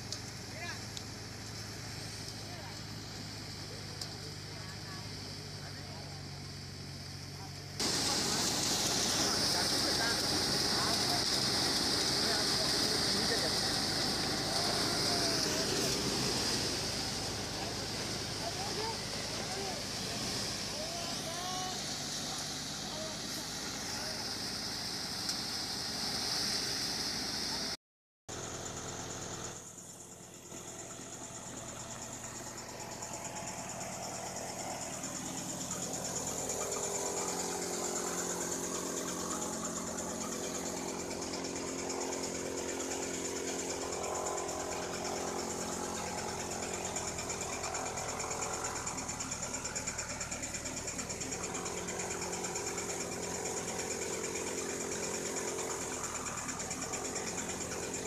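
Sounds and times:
threshing machine whirring: 0.0s - 27.6s, 28.4s - 58.0s
high mechanical whine: 0.0s - 58.0s.

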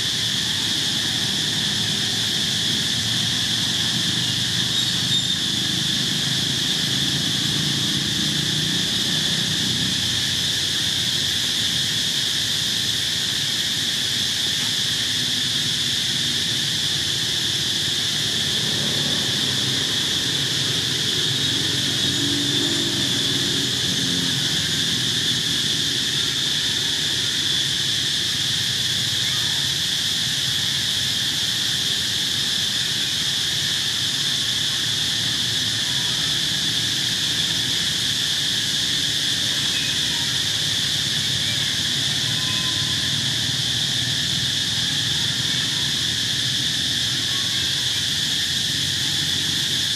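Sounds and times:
insects buzzing: 0.0s - 49.9s.

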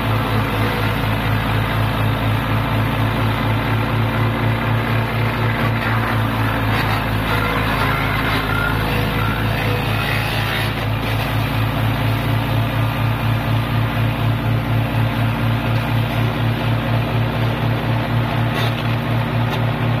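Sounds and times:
wood crusher engine throbbing: 0.0s - 20.0s.

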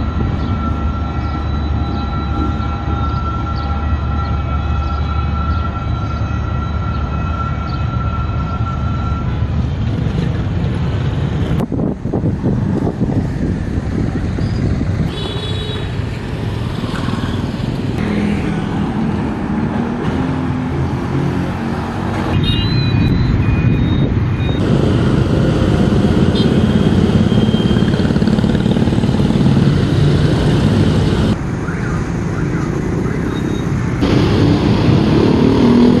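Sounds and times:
vehicle engines rumbling: 0.0s - 36.0s
short high beeps: 22.4s - 24.6s.

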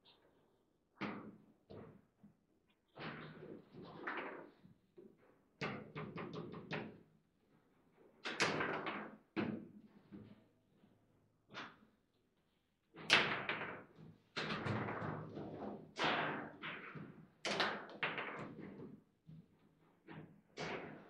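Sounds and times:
foosball ball knocks and clacks: 1.0s - 1.9s, 5.6s - 7.0s, 8.2s - 9.8s, 13.0s - 19.0s, 19.8s - 21.0s.

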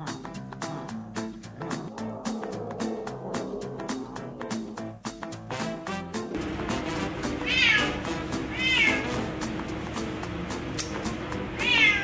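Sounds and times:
background music: 0.0s - 12.0s
cat meowing: 1.8s - 4.8s, 7.4s - 9.0s, 11.6s - 12.0s.

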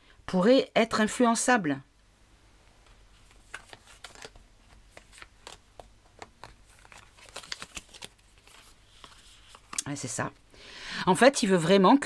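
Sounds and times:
paper cards clicking and sliding: 2.8s - 9.8s.

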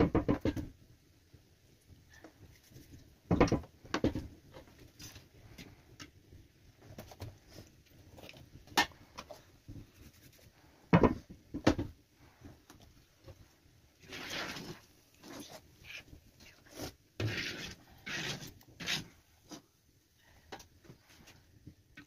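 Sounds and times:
knocks and thumps on wooden board: 0.0s - 0.7s, 3.3s - 4.3s, 10.9s - 12.0s.

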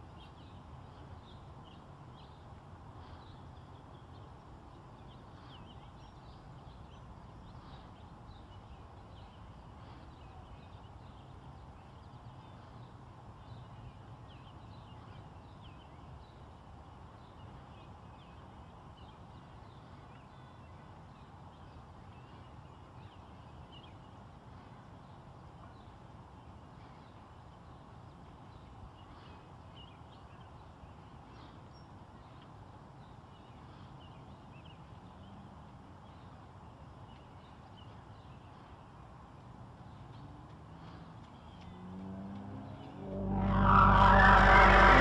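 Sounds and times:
steady low rumble: 42.9s - 45.0s.

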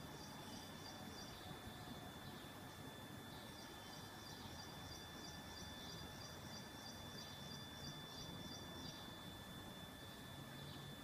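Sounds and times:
faint high-pitched tone: 0.0s - 11.0s.

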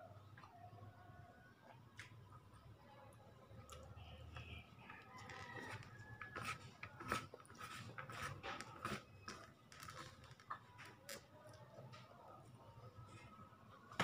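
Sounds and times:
person chewing rice: 5.2s - 13.4s.

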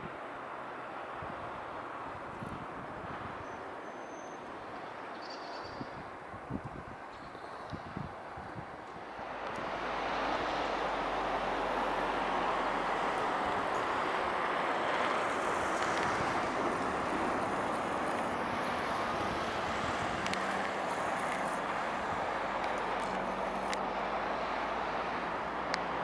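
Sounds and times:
outdoor background noise: 0.0s - 26.0s
faint clicks: 20.2s - 21.6s.

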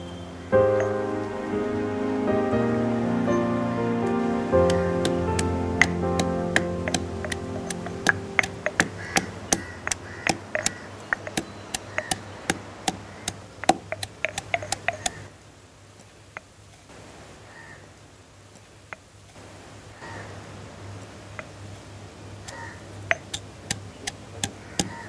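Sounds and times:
faint clicks: 4.7s - 15.2s
pestle pounding in stone mortar: 6.9s - 12.2s, 12.9s - 15.2s.

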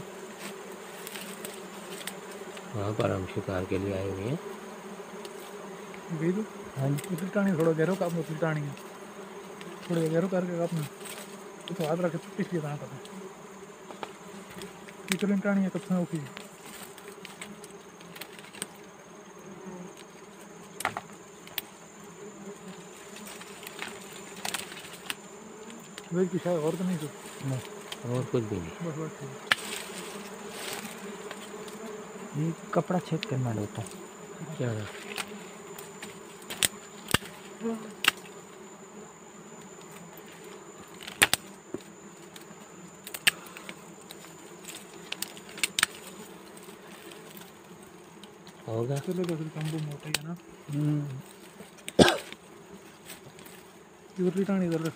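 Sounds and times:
bees buzzing: 0.0s - 54.9s
twigs snapping and knife clicks: 16.3s - 18.7s, 20.8s - 21.7s, 23.3s - 26.1s, 29.5s - 29.9s, 35.1s - 35.3s, 36.0s - 37.4s, 38.0s - 38.3s, 40.9s - 41.4s, 42.3s - 46.1s, 48.2s - 50.3s.

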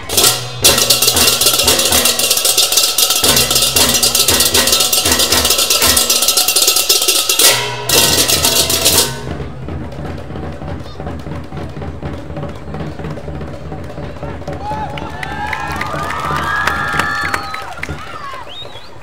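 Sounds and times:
hand cymbals clashing: 0.0s - 10.0s
ringing gongs: 0.0s - 11.1s
low drum strokes: 0.0s - 18.2s.

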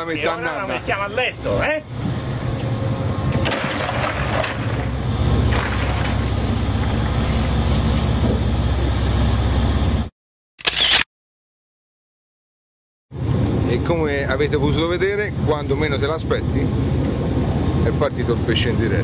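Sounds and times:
boat engine rumble: 0.0s - 10.1s, 13.1s - 19.0s.

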